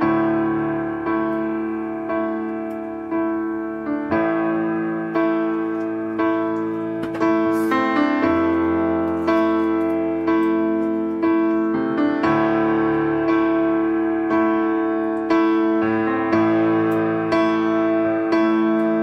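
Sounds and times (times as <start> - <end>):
keyboard chords ringing: 0.0 - 19.0.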